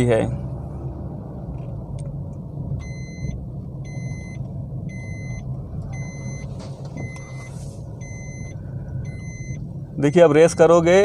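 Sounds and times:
engine and road rumble: 0.0s - 11.0s
car warning chime beeping: 2.8s - 9.7s.

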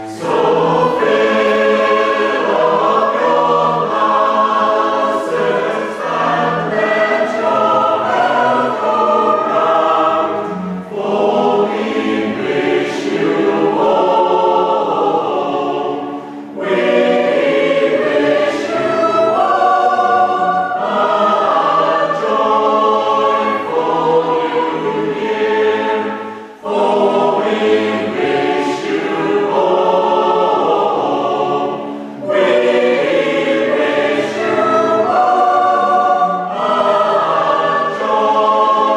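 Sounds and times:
mixed choir singing: 0.0s - 38.9s
strings with cello: 0.0s - 38.9s.

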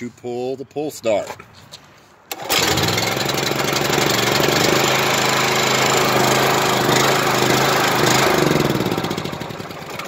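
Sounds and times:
pressure washer engine running: 2.3s - 10.0s.

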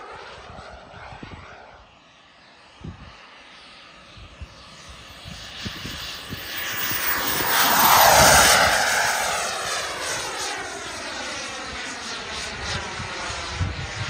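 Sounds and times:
model jet turbine whine: 0.0s - 14.0s.

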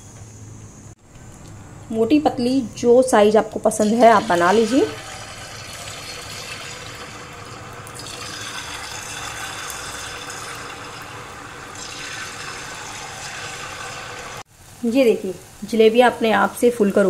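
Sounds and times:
batter sizzling in hot oil: 3.7s - 17.0s.

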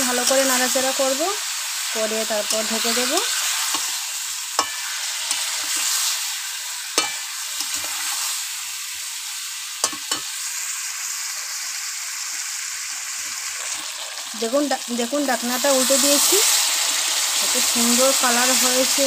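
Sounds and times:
food sizzling in oil: 0.0s - 19.0s
metal spatula knocking against pan: 7.0s - 7.2s.

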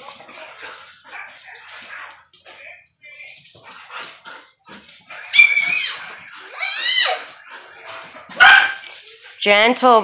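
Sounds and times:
dog barking: 1.0s - 2.2s, 8.2s - 8.9s
dog yelping: 5.1s - 8.9s
dog whining yip: 5.2s - 7.3s.

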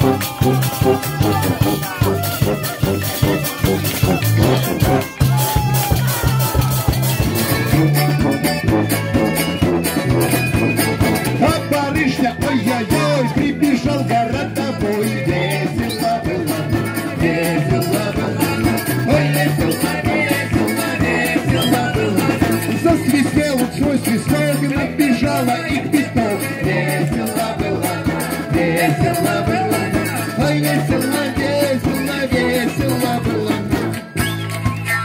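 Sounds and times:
flute: 0.0s - 13.7s, 20.7s - 23.1s, 32.3s - 35.0s
strummed mandolin: 0.0s - 20.2s
tuba bass line: 0.0s - 34.4s
people singing along: 12.0s - 23.3s, 24.0s - 33.8s.

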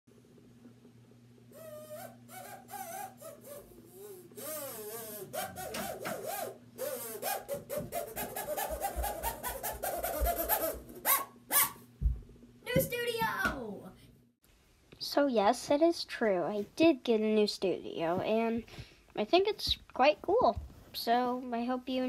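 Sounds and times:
harmonica tune: 1.9s - 10.8s.

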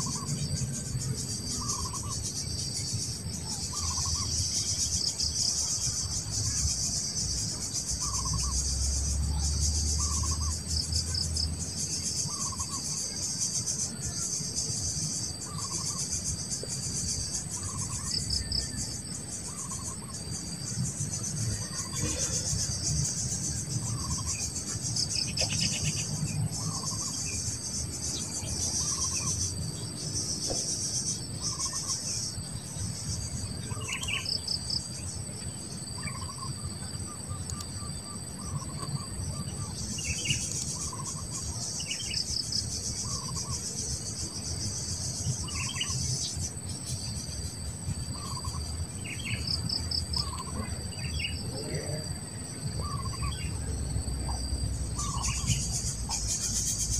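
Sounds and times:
insect chorus drone: 0.0s - 56.9s
bird chirps: 1.5s - 11.2s, 12.3s - 13.2s, 52.8s - 56.9s.

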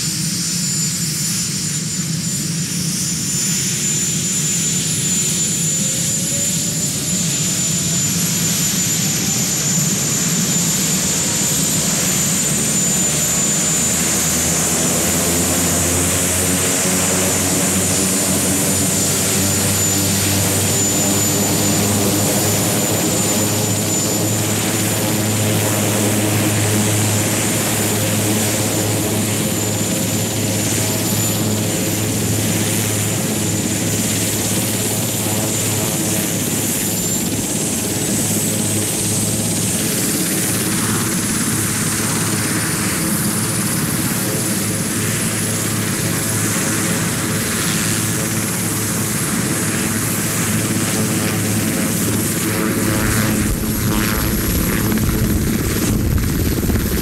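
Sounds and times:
helicopter engine whine: 0.0s - 57.0s
low hum: 52.4s - 57.0s.

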